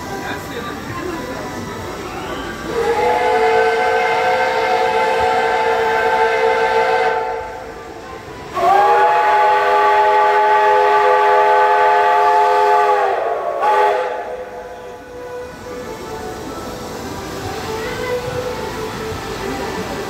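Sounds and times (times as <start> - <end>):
locomotive horn blasts: 2.7 - 7.6, 8.5 - 15.8.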